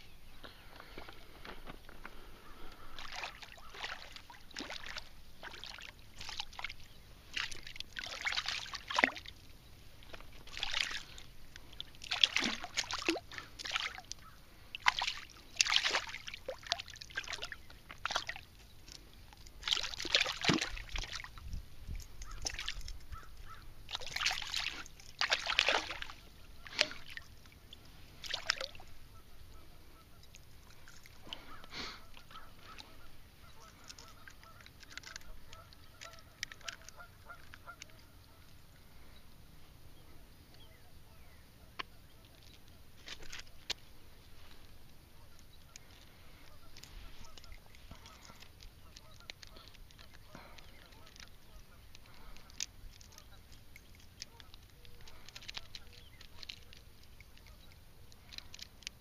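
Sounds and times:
geese honking: 0:31.3 - 0:38.6, 0:45.2 - 0:53.4.

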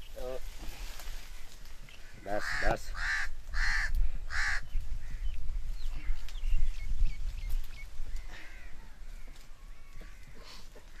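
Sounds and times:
small birds chirping: 0:00.0 - 0:11.0
crow cawing: 0:02.2 - 0:05.2, 0:08.2 - 0:10.6.

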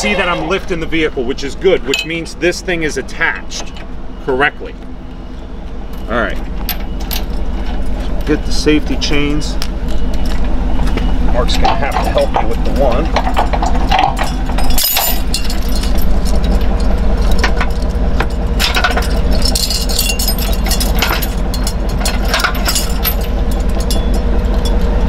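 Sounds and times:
truck engine idling: 0:00.0 - 0:25.0
chains clinking and rattling: 0:11.4 - 0:25.0.

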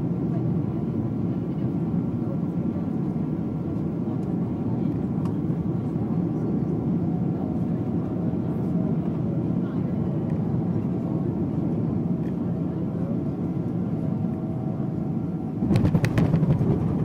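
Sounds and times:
airliner cabin engine and airflow: 0:00.0 - 0:17.0.

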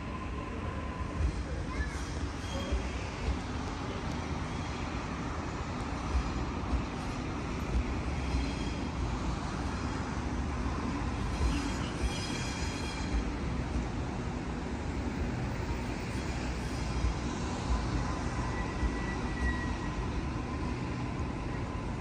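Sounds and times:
wheels rumbling on rail: 0:00.0 - 0:22.0
faint high squeal: 0:02.0 - 0:03.2, 0:11.3 - 0:13.3, 0:18.2 - 0:20.1.

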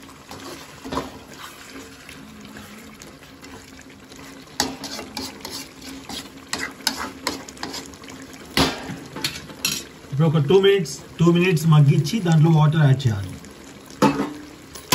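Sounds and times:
soft sizzle: 0:00.0 - 0:14.9
spatula scraping metal pan: 0:04.6 - 0:08.0.

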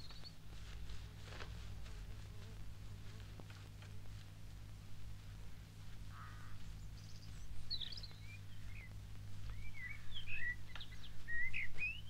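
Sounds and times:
birds chirping and whistling: 0:00.0 - 0:00.4, 0:06.7 - 0:12.0
low steady hum: 0:00.0 - 0:12.0.

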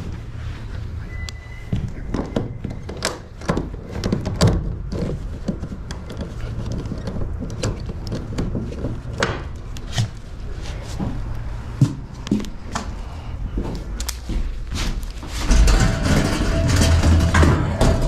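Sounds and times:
knocks and clunks: 0:01.8 - 0:09.6, 0:15.3 - 0:18.0.

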